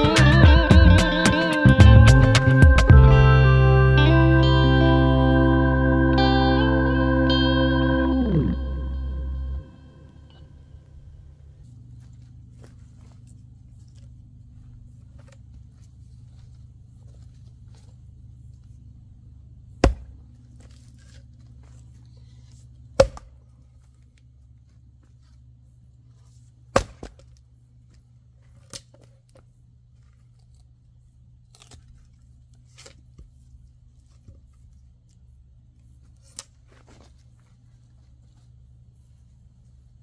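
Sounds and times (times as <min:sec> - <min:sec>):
steady low hum: 0:00.0 - 0:40.0
sharp chopping strikes: 0:19.8 - 0:20.2, 0:23.0 - 0:23.3, 0:26.7 - 0:27.2.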